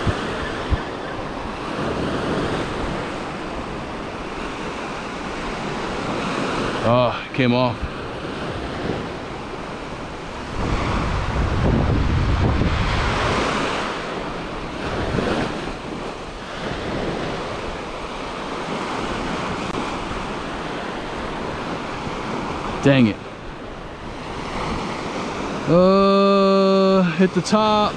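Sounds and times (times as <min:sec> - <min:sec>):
wind buffeting microphone: 0:00.0 - 0:06.8, 0:07.7 - 0:22.8.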